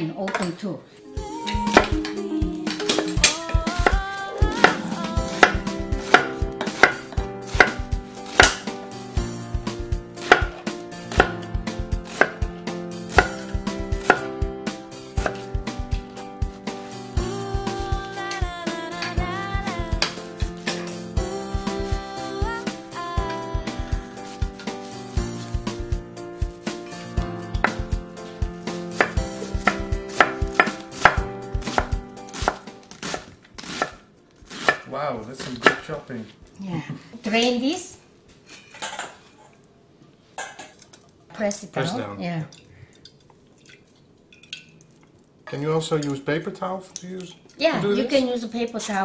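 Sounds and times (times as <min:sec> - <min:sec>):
knife chopping on wooden board: 0:04.6 - 0:08.8, 0:10.2 - 0:14.4, 0:15.2 - 0:15.5, 0:27.5 - 0:27.9, 0:28.8 - 0:35.9.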